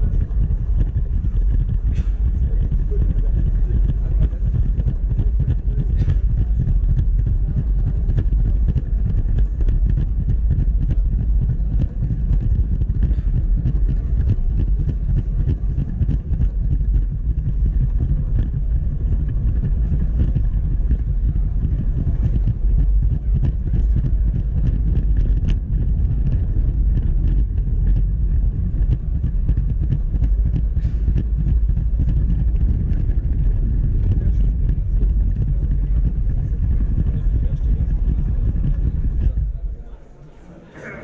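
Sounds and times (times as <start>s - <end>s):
toy train wheels and motor rumbling: 0.0s - 39.7s.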